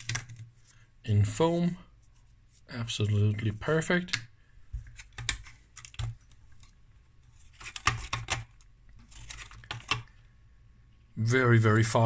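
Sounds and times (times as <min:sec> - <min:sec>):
plastic power supply parts clicking: 0:04.1 - 0:06.8, 0:07.6 - 0:10.2.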